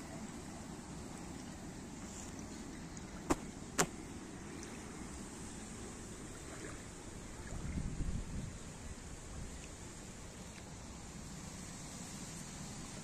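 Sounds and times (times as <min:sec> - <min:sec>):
small waves lapping at shore: 0:00.0 - 0:13.0
gusty wind: 0:02.8 - 0:09.6
wind rumbling on microphone: 0:06.1 - 0:10.0.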